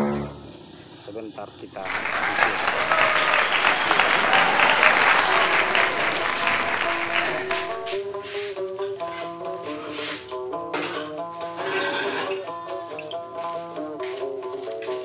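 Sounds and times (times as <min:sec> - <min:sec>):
applause: 0:01.8 - 0:08.0
background music: 0:01.8 - 0:08.8.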